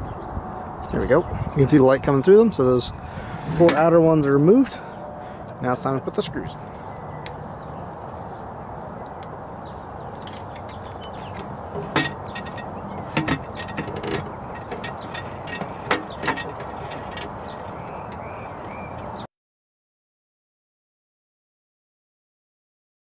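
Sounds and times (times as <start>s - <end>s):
screws knocking on aluminum: 11.2s - 17.7s.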